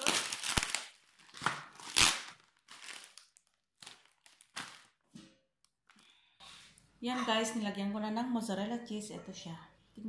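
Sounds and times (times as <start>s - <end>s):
plastic packet crinkling: 0.0s - 5.8s.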